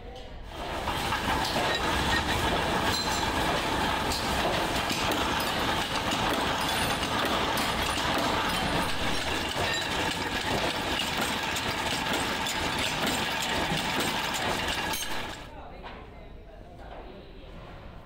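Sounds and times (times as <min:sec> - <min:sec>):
factory machinery running: 0:00.5 - 0:15.5.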